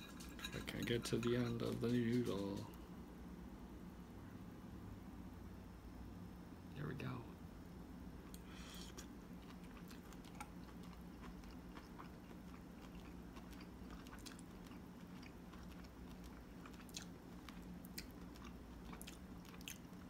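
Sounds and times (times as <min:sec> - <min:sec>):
person chewing: 0:08.3 - 0:20.0.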